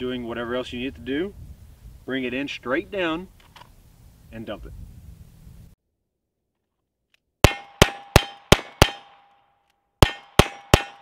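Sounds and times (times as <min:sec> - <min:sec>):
steel target ringing: 0:07.4 - 0:09.3, 0:10.0 - 0:11.0.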